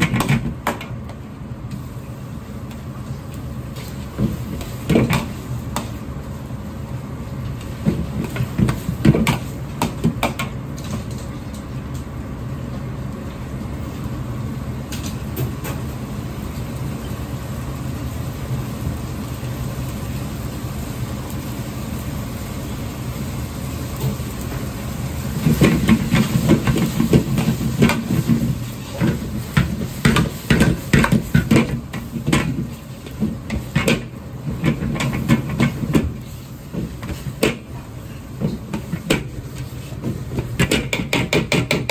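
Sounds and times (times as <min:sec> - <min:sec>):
gas burner roaring: 0:00.0 - 0:41.9
rice sizzling in a wok: 0:00.0 - 0:41.9.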